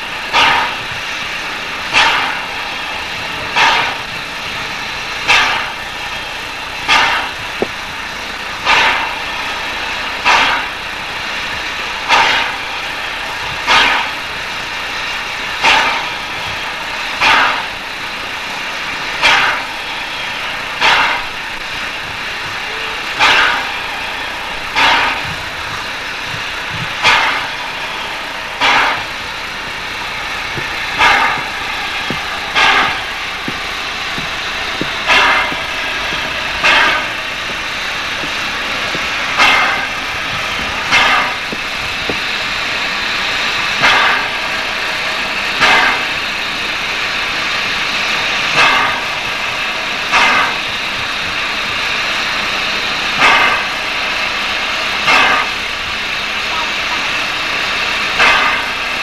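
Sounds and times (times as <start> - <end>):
steam hissing: 0.0 - 59.0
air pump puffing: 5.3 - 8.0, 20.8 - 44.4.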